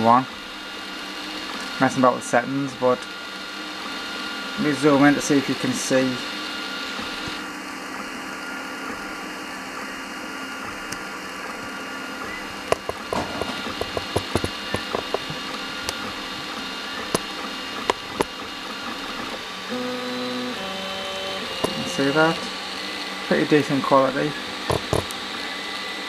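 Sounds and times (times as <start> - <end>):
stepper motors whining: 0.0 - 26.0
sharp clicks and taps: 12.7 - 16.1, 24.7 - 25.2.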